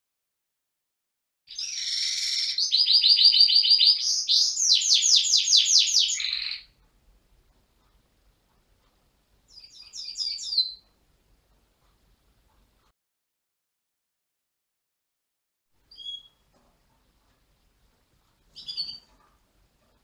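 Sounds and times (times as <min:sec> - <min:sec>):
canary trilling song: 0:01.5 - 0:06.8, 0:09.4 - 0:11.0, 0:15.8 - 0:16.5, 0:18.5 - 0:19.9.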